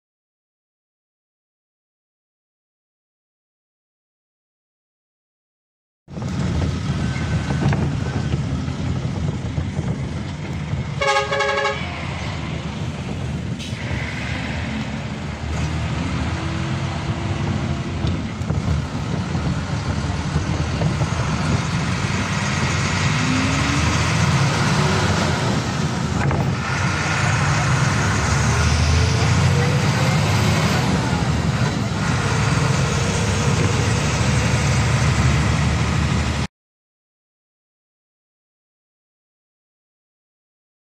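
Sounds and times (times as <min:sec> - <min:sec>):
bus engine rumbling: 0:06.1 - 0:36.5
vehicle horn: 0:11.0 - 0:12.0.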